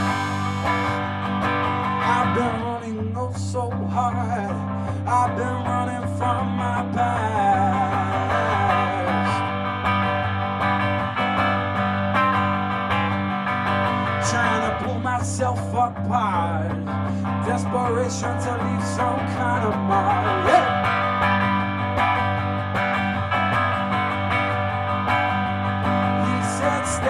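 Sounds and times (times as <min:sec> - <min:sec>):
steady low drone: 0:00.0 - 0:02.8
electric guitar with bending notes: 0:00.0 - 0:27.0.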